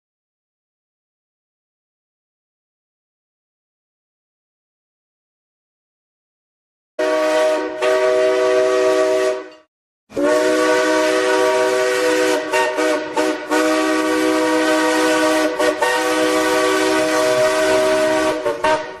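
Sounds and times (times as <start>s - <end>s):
steam locomotive whistle: 7.0s - 19.0s.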